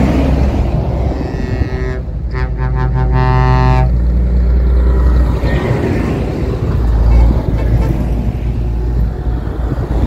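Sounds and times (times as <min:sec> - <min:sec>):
tyre and road noise: 0:00.0 - 0:10.0
multi-tone truck horn: 0:01.0 - 0:04.0, 0:07.1 - 0:08.2.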